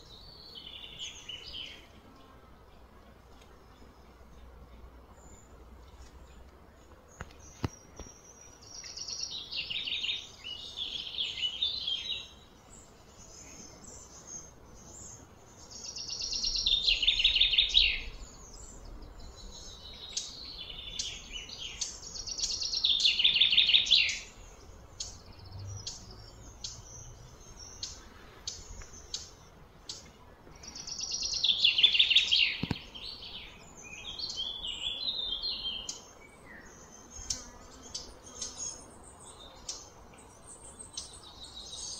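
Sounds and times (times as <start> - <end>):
bird chirps: 7.1 - 41.9
songbird trilling: 15.7 - 18.6, 30.6 - 36.1.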